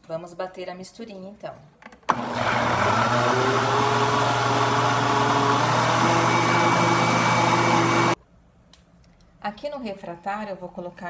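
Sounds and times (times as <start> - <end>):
blender motor whirring: 2.1 - 8.2.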